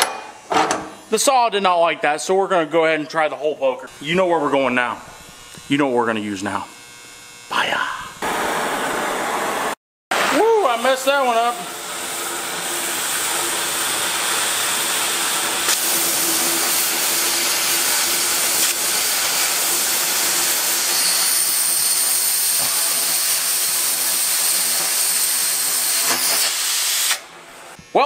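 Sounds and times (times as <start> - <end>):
cutting torch hissing: 7.4 - 27.3.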